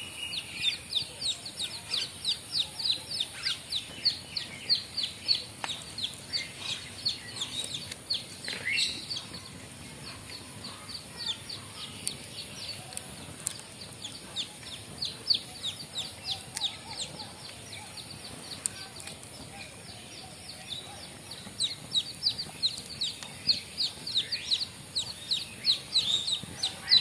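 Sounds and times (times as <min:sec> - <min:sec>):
bird peeping rapidly: 0:00.0 - 0:27.0
faint clicks: 0:18.5 - 0:19.4.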